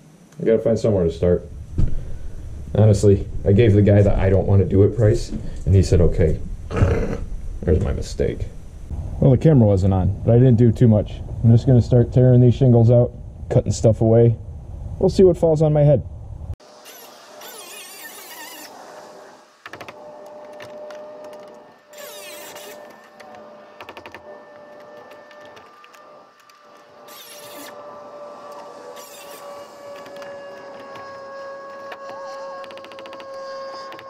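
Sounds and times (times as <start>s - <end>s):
high-pitched hum: 16.0s - 34.0s
harsh rattling bursts: 29.0s - 34.0s.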